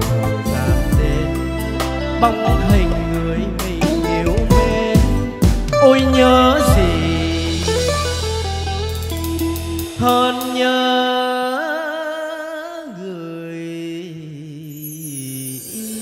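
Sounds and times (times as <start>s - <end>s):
man singing with vibrato: 0.0s - 8.2s, 9.9s - 16.0s
live band with drums: 0.0s - 10.9s.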